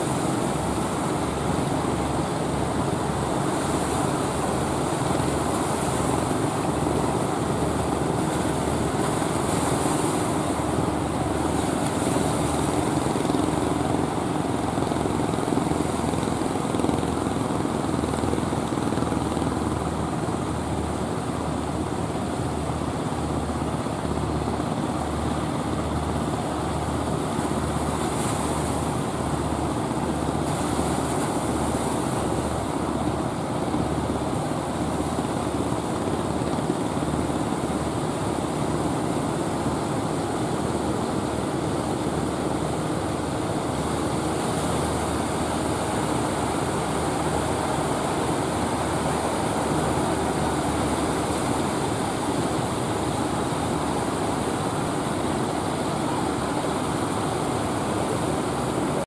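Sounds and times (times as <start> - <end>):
waves washing: 0.0 - 59.0.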